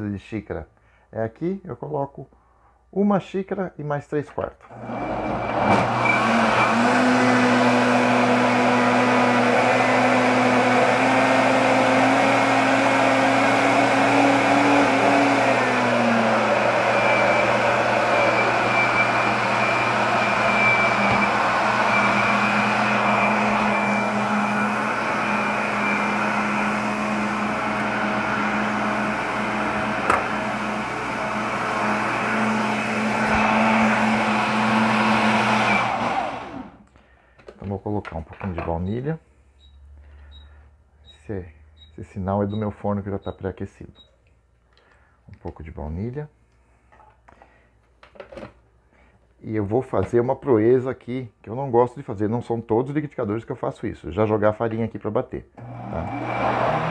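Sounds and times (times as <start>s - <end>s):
blender running: 4.7s - 36.8s, 55.6s - 56.9s.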